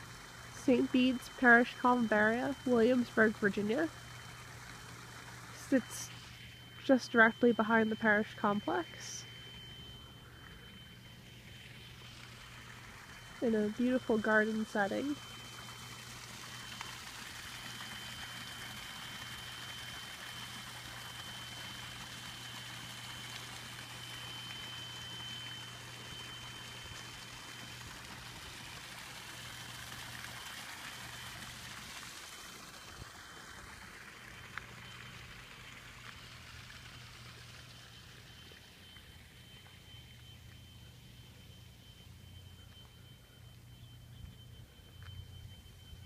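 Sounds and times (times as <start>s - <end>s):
thin high-pitched tone: 5.6s - 28.3s, 36.9s - 46.0s.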